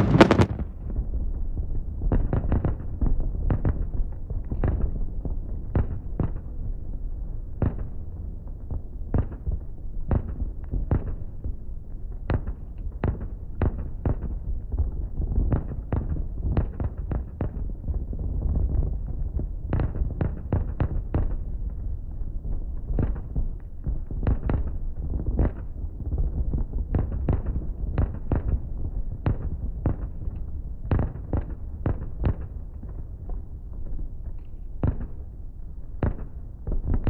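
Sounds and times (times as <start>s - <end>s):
fireworks bangs: 0.0s - 1.1s, 35.9s - 37.0s.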